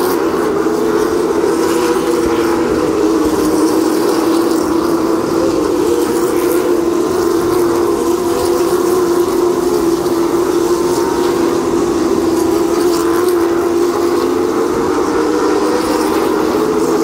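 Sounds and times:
race car engines droning: 0:00.0 - 0:17.0.

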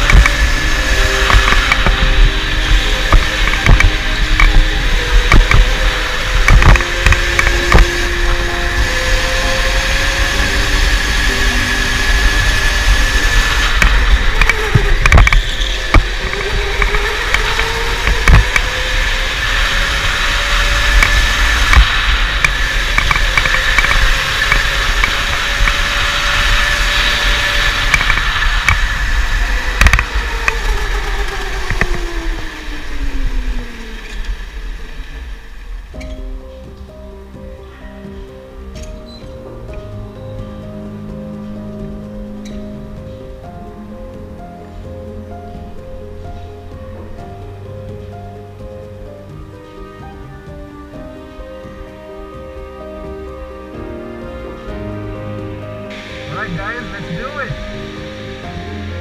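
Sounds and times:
electric motor whining: 0:00.0 - 0:35.3
low rumble: 0:00.0 - 0:59.0.

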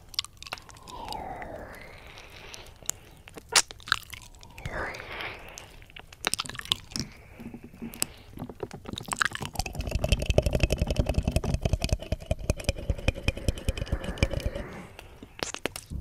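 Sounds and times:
wet mouth clicks and licking: 0:00.0 - 0:01.2, 0:02.6 - 0:04.7, 0:05.5 - 0:15.9
nails scratching a microphone: 0:07.0 - 0:15.9.

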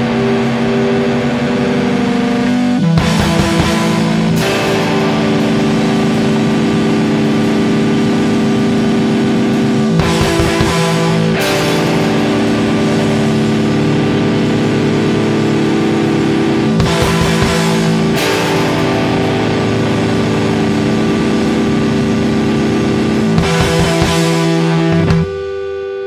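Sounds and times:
cymbals crashing: 0:00.0 - 0:25.0
drums: 0:00.0 - 0:26.0
electric guitar notes ringing: 0:00.0 - 0:26.0.

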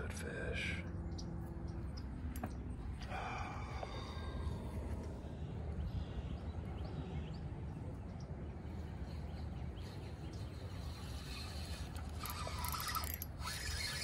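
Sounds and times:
steady low rumble: 0:00.0 - 0:10.8
faint chirping bird calls: 0:00.7 - 0:14.0.

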